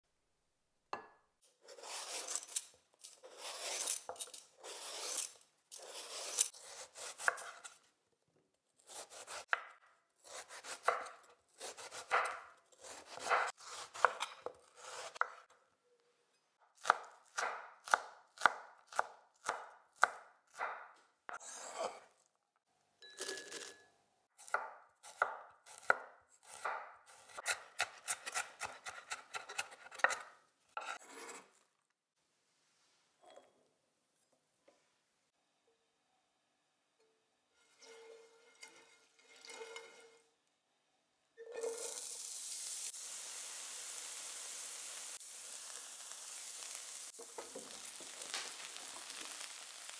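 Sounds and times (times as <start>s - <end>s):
knife cutting on cutting board: 1.6s - 2.6s, 3.2s - 7.8s, 8.8s - 9.6s, 10.2s - 15.4s, 25.2s - 31.6s
knife scraping while peeling: 1.6s - 7.8s.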